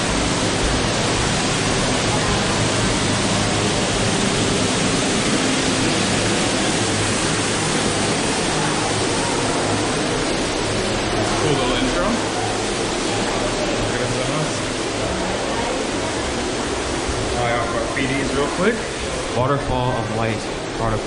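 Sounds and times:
rush of falling water: 0.0s - 21.0s.

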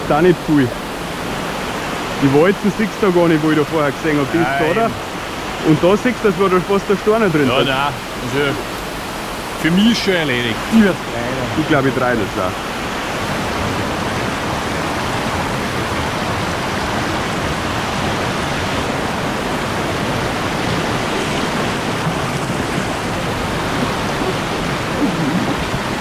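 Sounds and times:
whitewater rushing over rocks: 0.0s - 26.0s.

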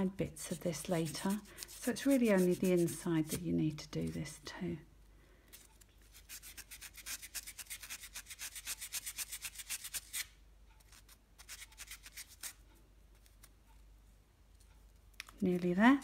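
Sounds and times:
sandpaper scratching metal ring: 0.8s - 3.0s.

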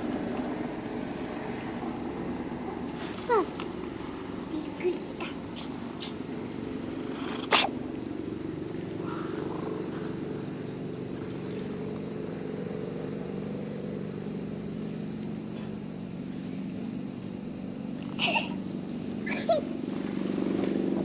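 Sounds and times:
cat purring: 7.0s - 7.6s.

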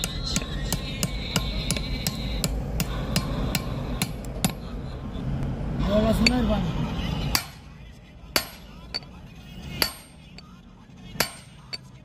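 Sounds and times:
hammer striking steel: 0.0s - 4.6s, 7.3s - 7.6s, 8.4s - 9.2s, 9.8s - 10.5s, 11.2s - 12.0s.

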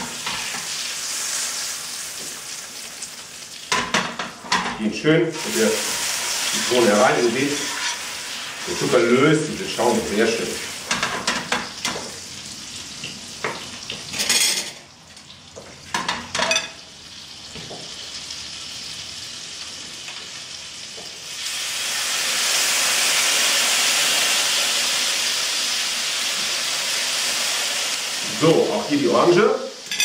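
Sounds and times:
caramel sizzling: 0.0s - 4.5s, 5.3s - 14.9s, 15.6s - 30.0s
fork scraping in pan: 7.5s - 8.2s.

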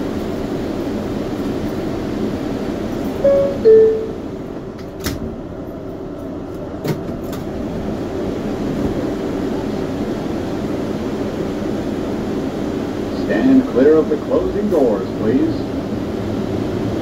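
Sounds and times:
two-tone door chime: 3.2s - 4.3s.

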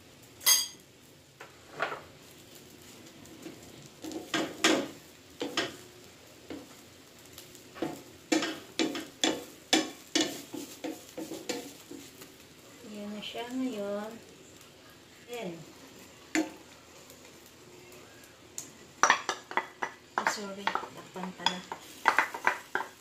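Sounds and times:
faint sizzle: 0.0s - 23.0s
spatula scraping frying pan: 7.8s - 12.4s, 19.8s - 23.0s.

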